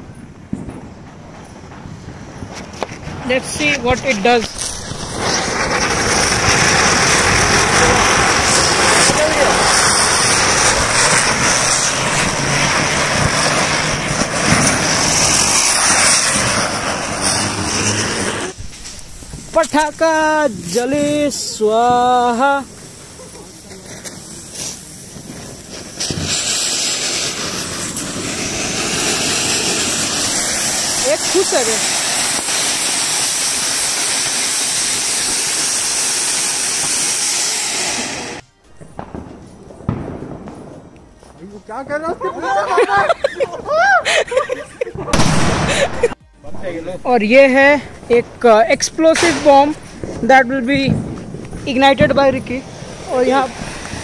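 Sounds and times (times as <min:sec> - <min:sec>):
quiet outdoor background: 0:00.0 - 0:54.0
spinning firecrackers hissing: 0:00.0 - 0:54.0.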